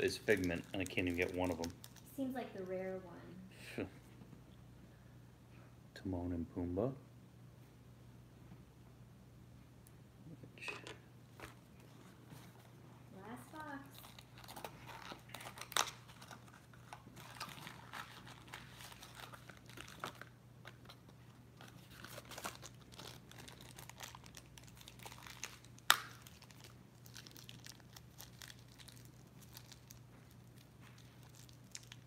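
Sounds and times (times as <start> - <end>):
packaging crinkling and tearing: 0.0 - 2.2, 13.6 - 32.0.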